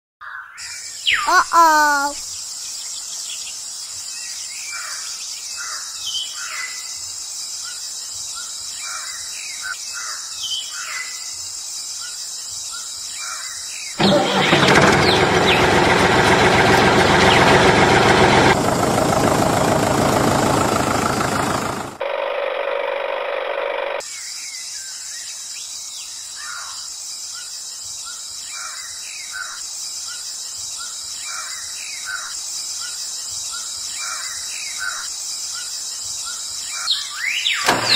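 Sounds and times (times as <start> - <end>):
bird chirps: 0.2 - 3.6, 30.0 - 37.9.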